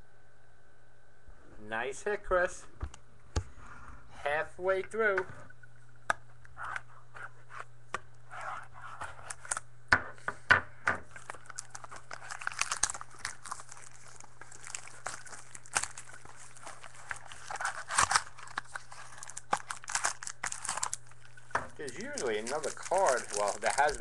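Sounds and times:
foil wrapper tearing and crinkling: 0:11.1 - 0:24.0.

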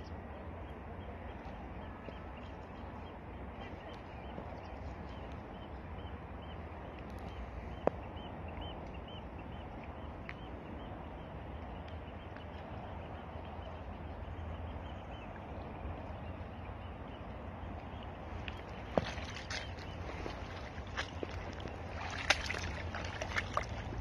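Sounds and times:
small waves lapping at shore: 0:00.0 - 0:24.0
wind on microphone: 0:01.1 - 0:24.0.

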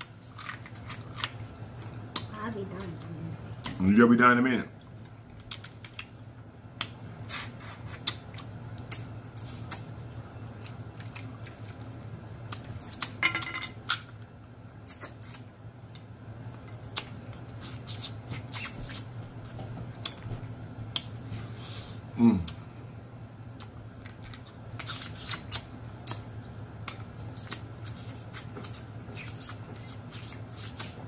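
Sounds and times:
crab shell cracking: 0:00.0 - 0:02.3, 0:04.9 - 0:06.2, 0:23.5 - 0:29.8
low steady hum: 0:00.0 - 0:31.0.

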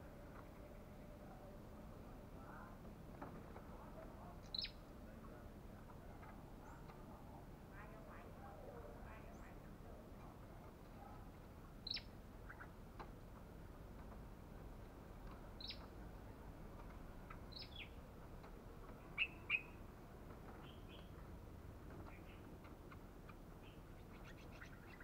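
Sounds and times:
bird giving high chirps: 0:19.2 - 0:19.8.

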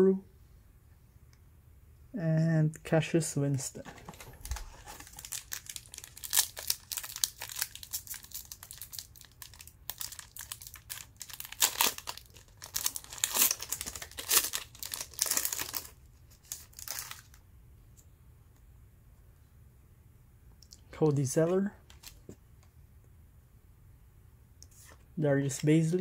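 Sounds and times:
plastic wrapper crinkling and tearing: 0:04.4 - 0:17.4.

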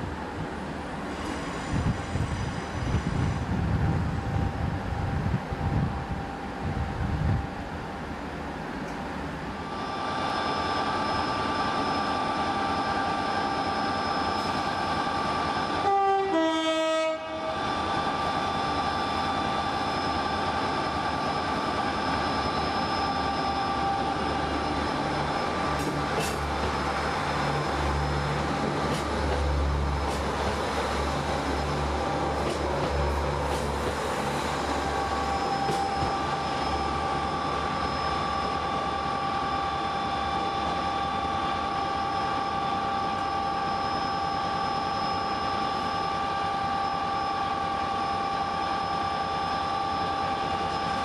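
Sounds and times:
diesel trains whining: 0:00.0 - 0:51.0
two-note train horn: 0:15.8 - 0:17.6.

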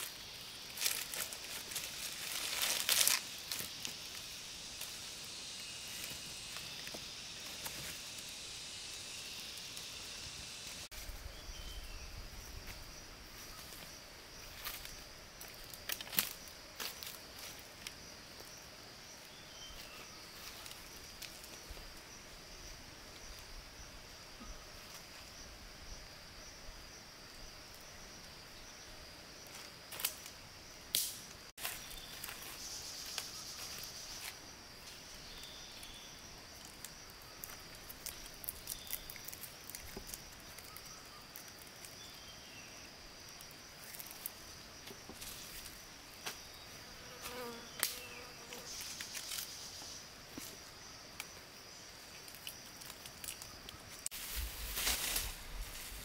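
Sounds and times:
insect chorus: 0:00.0 - 0:56.0
sharp snaps: 0:30.9 - 0:31.4.

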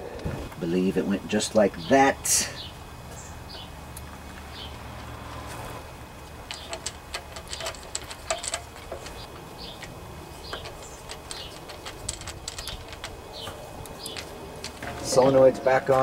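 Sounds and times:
metal tools tapping: 0:06.4 - 0:16.0
ratchet wrench clicking: 0:06.5 - 0:15.1.

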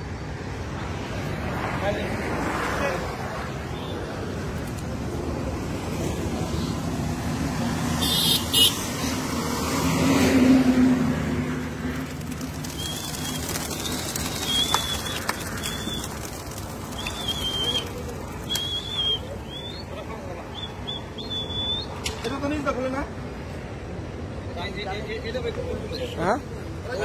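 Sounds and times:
outdoor background noise: 0:00.0 - 0:27.0
pigeon wings clattering: 0:11.8 - 0:19.6.

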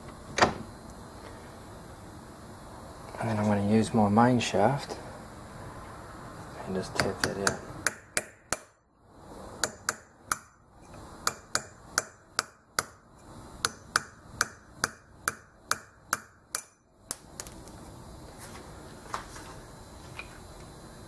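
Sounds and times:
hammer tapping metal shaft: 0:06.9 - 0:08.8, 0:09.6 - 0:13.0, 0:13.6 - 0:16.8.

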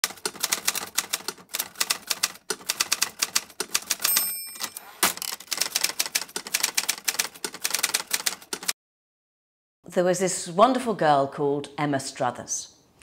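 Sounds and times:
typewriter carriage return clunk: 0:03.7 - 0:06.0
typewriter bell ringing: 0:04.0 - 0:05.1.

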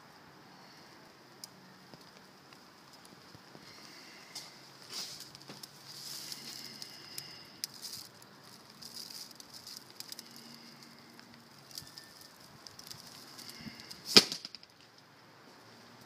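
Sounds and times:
plastic bags rustling: 0:03.9 - 0:14.9.

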